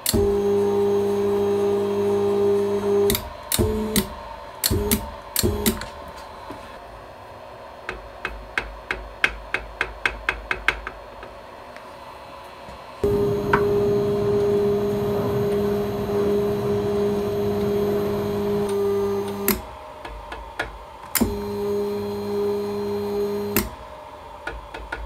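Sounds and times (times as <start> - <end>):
motor drive whining: 0.0 - 6.7, 13.0 - 19.8, 21.1 - 23.8.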